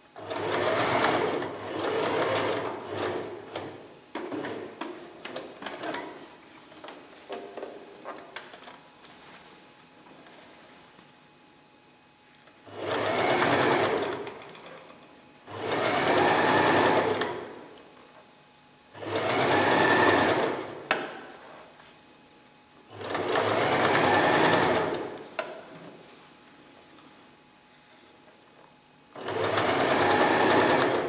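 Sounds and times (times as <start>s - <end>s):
sewing machine stitching: 0.2s - 6.2s, 12.7s - 14.7s, 15.5s - 17.6s, 19.0s - 21.0s, 22.9s - 25.2s, 29.2s - 31.0s.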